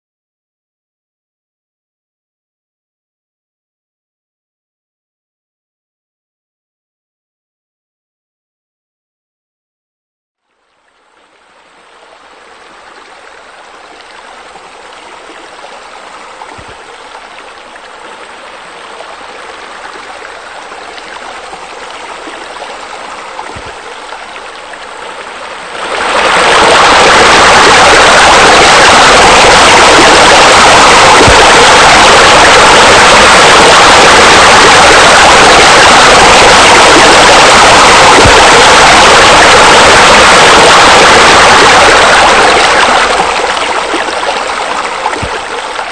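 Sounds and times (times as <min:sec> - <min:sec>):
running water rushing: 0:10.8 - 0:45.9.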